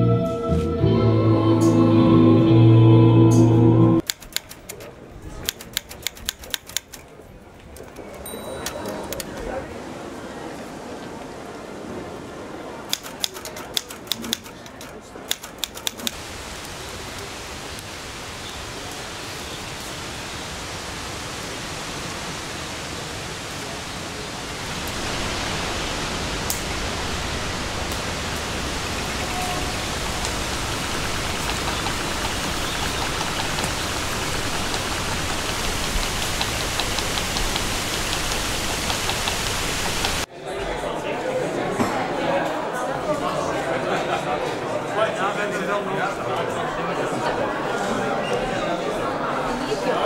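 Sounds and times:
steady rushing hiss: 0:09.6 - 0:40.3.

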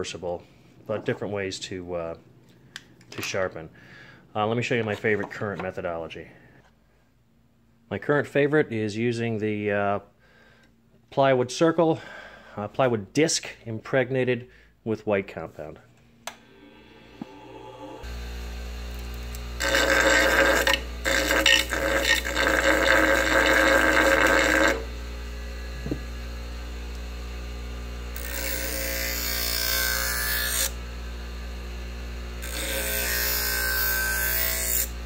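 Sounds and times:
bench grinder humming: 0:16.3 - 0:35.0
rough grinding of compound: 0:16.5 - 0:24.9.

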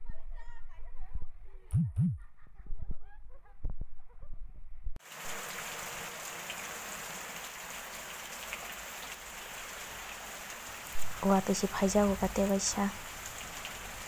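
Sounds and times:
rain on concrete steps: 0:05.0 - 0:14.0
water streaming off roof: 0:05.0 - 0:14.0.

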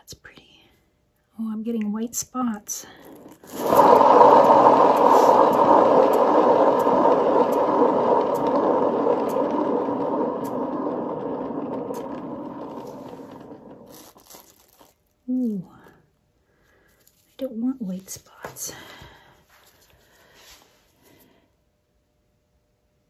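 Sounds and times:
turntable rumbling as it spins: 0:03.0 - 0:14.2.

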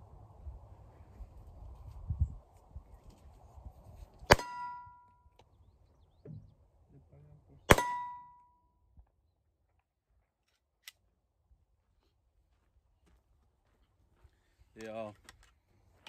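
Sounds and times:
handgun shot: 0:04.3 - 0:04.9, 0:07.7 - 0:08.3.

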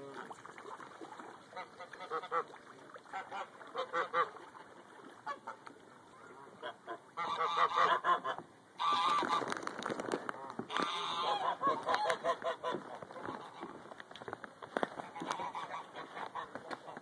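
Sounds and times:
geese honking: 0:03.1 - 0:04.5, 0:06.4 - 0:09.5, 0:10.7 - 0:13.8, 0:15.0 - 0:17.0.

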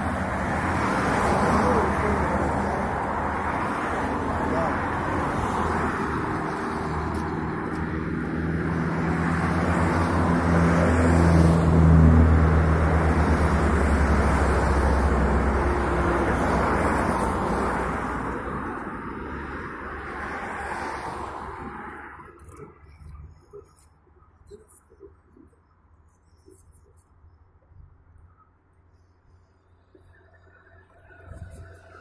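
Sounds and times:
motor vehicle passing: 0:00.0 - 0:23.4.

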